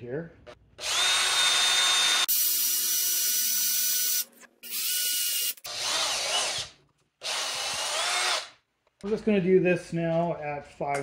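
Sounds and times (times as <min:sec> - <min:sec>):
cordless drill boring into metal: 0:00.8 - 0:08.5.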